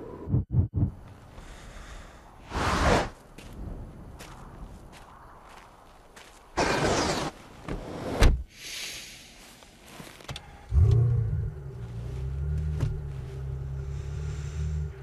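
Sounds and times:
car engine starting and idling: 10.3 - 15.0.

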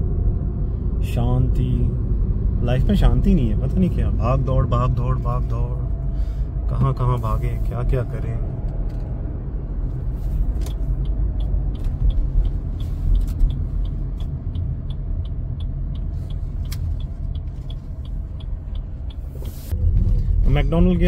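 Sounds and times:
road and engine rumble: 0.0 - 21.0
light regular ticking: 10.4 - 21.0.

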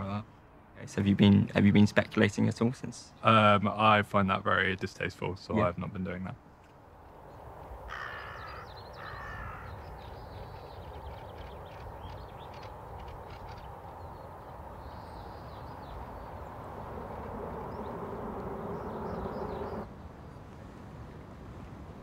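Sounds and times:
steady low rumble: 15.4 - 19.9.

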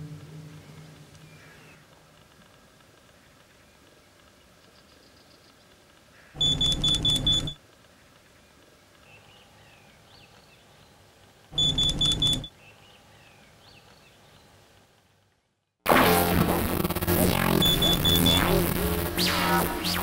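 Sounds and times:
bite alarm high beeps: 6.4 - 7.6, 11.6 - 12.5, 17.0 - 20.0.

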